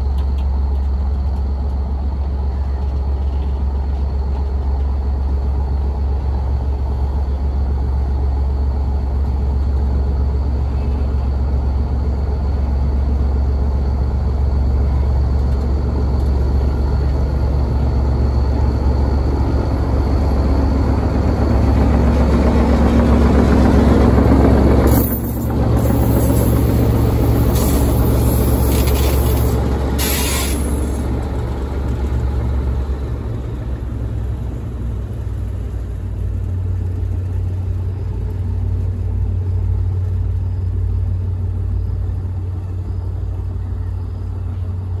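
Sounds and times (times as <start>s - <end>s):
diesel locomotive engine rumble: 0.0s - 45.0s
high hiss bursts: 25.8s - 31.0s.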